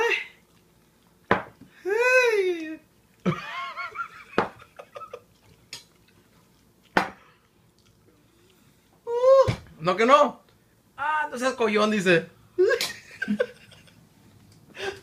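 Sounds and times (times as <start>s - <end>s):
knocks on wooden table: 1.3s - 1.5s.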